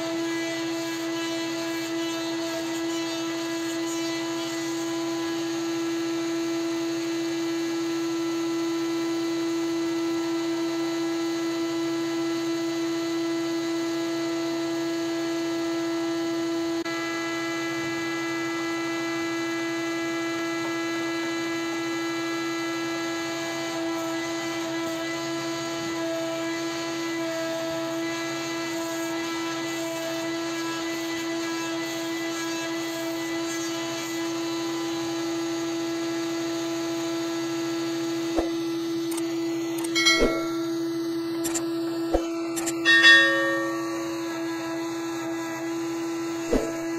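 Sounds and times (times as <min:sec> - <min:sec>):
band sawmill sawing log: 0:23.3 - 0:35.0, 0:43.1 - 0:46.9.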